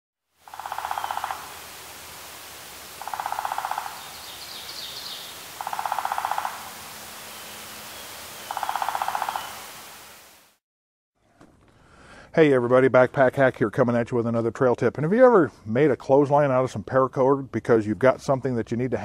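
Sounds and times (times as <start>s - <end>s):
steady hiss: 0.4s - 10.6s
animal trilling call: 0.5s - 1.5s, 3.0s - 6.8s, 8.4s - 9.6s
high chirping call: 0.5s - 1.6s, 2.9s - 9.7s.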